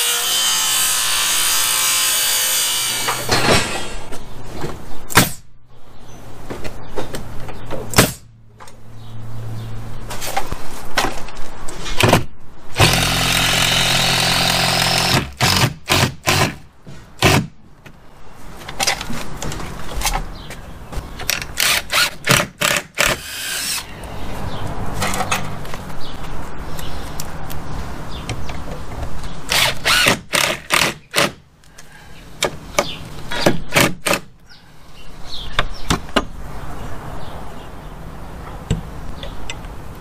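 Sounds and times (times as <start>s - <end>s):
power drill driving screws: 12.8s - 16.5s, 21.6s - 23.9s, 29.5s - 31.4s.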